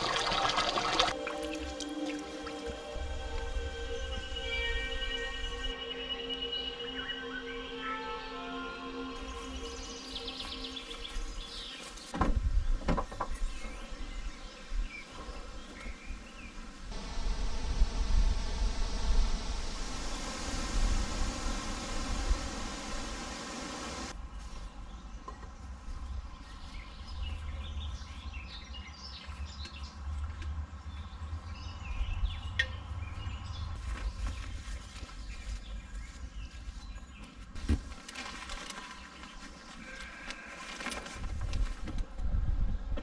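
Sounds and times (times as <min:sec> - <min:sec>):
low wind rumble: 0:00.0 - 0:07.8, 0:09.0 - 0:37.7, 0:41.0 - 0:43.0
insect chirps: 0:01.2 - 0:12.0, 0:17.0 - 0:24.1
bird chirps: 0:03.8 - 0:12.1
thump: 0:12.1 - 0:13.2
canvas rustling: 0:33.7 - 0:42.2.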